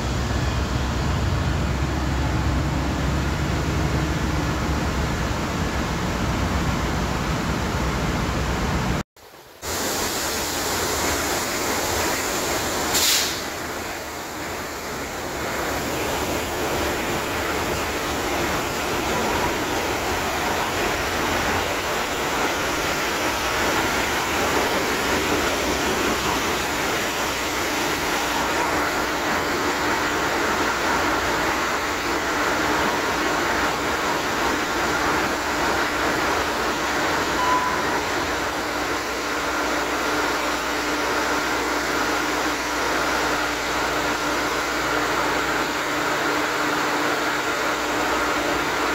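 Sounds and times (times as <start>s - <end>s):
marine diesel engine running: 0.0s - 9.0s.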